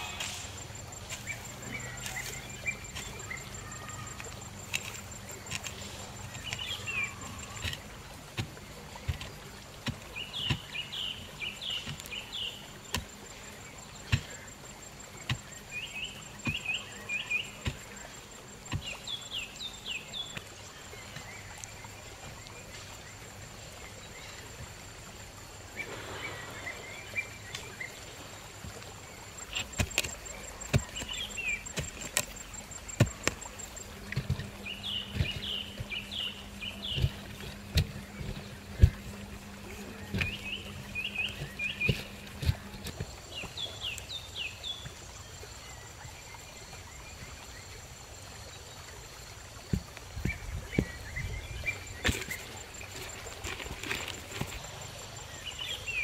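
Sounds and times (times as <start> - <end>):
birds chirping: 0.0 - 24.6, 25.3 - 48.3, 49.1 - 56.0
hoe thudding into soil: 29.5 - 44.0.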